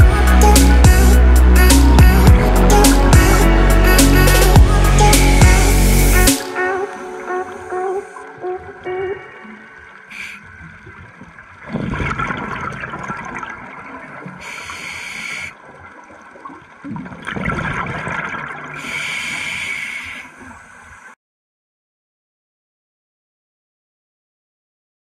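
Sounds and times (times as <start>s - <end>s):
bubbly underwater exhalations: 9.4s - 20.6s
regulator inhalation hiss: 10.1s - 10.5s, 14.4s - 15.6s, 18.8s - 20.5s.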